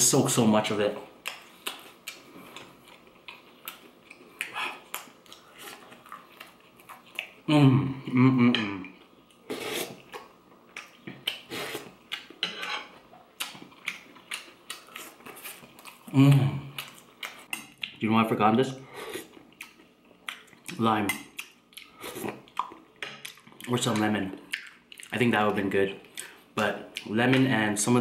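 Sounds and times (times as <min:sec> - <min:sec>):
person humming: 0:07.5 - 0:09.0, 0:16.1 - 0:16.7.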